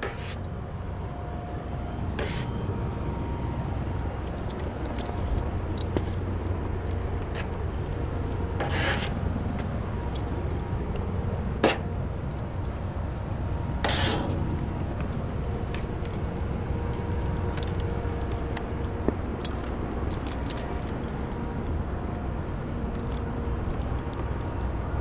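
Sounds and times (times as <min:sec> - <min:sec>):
squeegee scraping glass: 0:00.0 - 0:00.4, 0:02.2 - 0:02.5, 0:08.6 - 0:09.2, 0:13.8 - 0:14.4
low outdoor rumble: 0:00.0 - 0:25.0.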